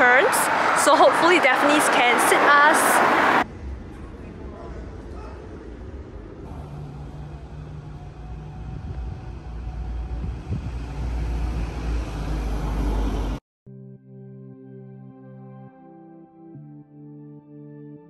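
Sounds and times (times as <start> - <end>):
car engine humming: 0.0 - 13.4
low traffic rumble: 0.0 - 13.4.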